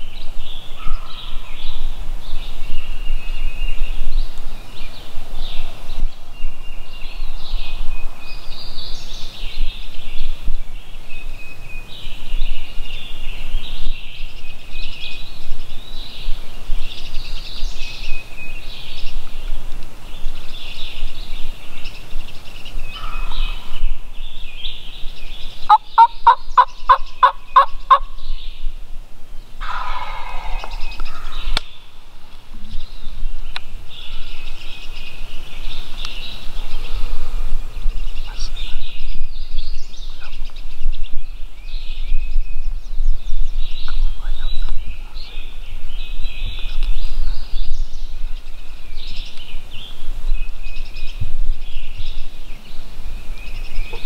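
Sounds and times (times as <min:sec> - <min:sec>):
songbirds chirping: 0:00.0 - 0:54.0
turkey calling: 0:25.7 - 0:28.2, 0:29.6 - 0:31.6
raspy turkey yelps: 0:29.6 - 0:31.4.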